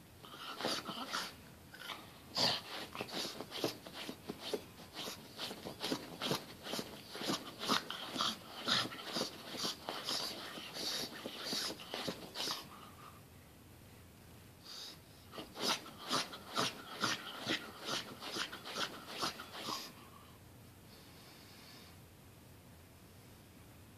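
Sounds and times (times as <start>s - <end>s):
dog snorting and snuffling: 0.2s - 12.9s, 15.3s - 20.0s.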